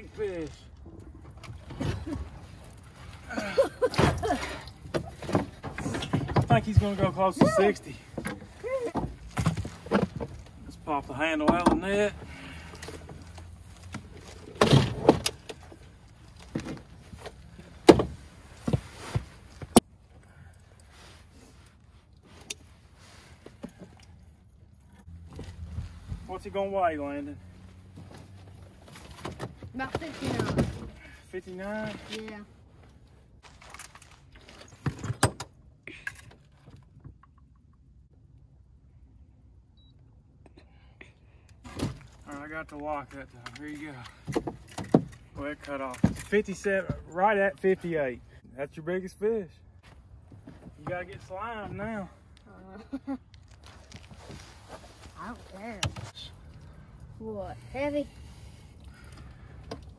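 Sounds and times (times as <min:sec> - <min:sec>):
landing net rustling and clattering: 0:33.4 - 0:35.4.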